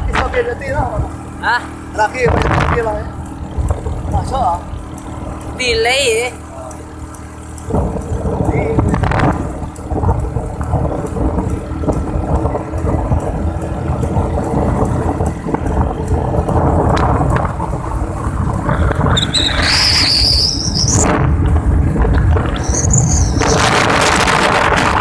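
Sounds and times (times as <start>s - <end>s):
road and wind noise: 0.0s - 25.0s
vehicle rumble and hum: 0.0s - 25.0s
high squeal rising in pitch: 19.1s - 21.1s, 22.5s - 23.8s.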